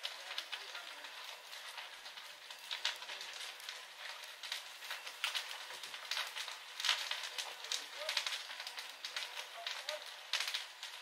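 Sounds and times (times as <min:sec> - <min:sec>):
fire crackling and popping: 0:00.0 - 0:11.0
fire hiss: 0:00.0 - 0:11.0.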